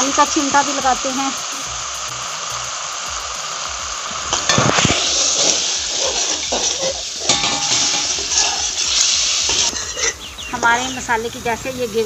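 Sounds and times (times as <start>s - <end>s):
sauce sizzling in a wok: 0.0s - 12.0s
metal spoon scraping a pan: 4.1s - 10.8s.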